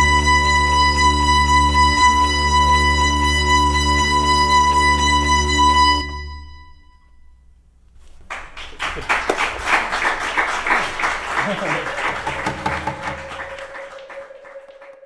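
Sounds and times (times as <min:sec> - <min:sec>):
strings: 0:00.0 - 0:15.0
studio audience applause: 0:08.3 - 0:15.0.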